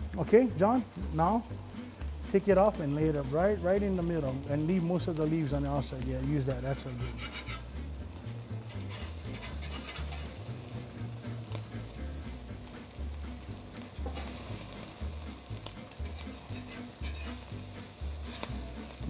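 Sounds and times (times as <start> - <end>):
fish sizzling on a grill: 0.0 - 19.0
metal spatula scraping grates: 6.4 - 7.9, 8.6 - 10.5, 15.9 - 17.5, 18.2 - 18.6.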